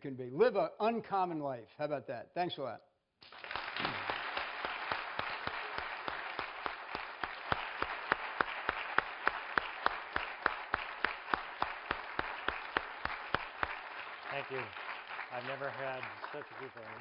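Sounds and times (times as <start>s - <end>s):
audience applauding: 3.2s - 17.0s
close hand clapping: 3.2s - 17.0s.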